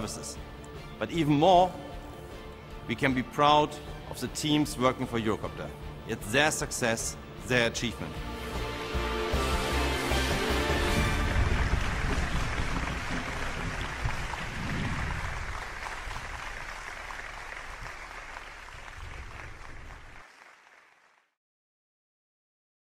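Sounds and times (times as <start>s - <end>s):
crowd applauding: 9.8s - 21.4s.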